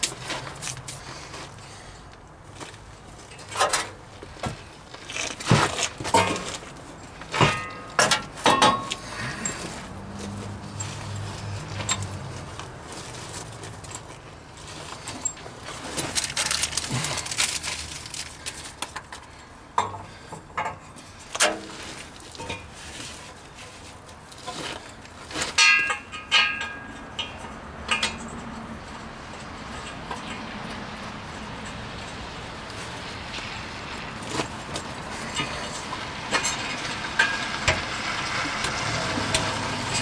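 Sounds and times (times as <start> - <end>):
ringing metal clanks: 7.3 - 9.8, 25.5 - 28.4
metallic clinks and knocks: 7.3 - 12.3.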